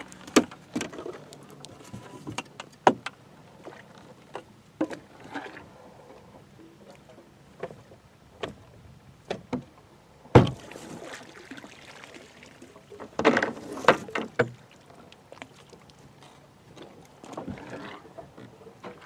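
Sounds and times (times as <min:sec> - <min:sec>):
water sloshing out of tube: 0:10.4 - 0:19.0.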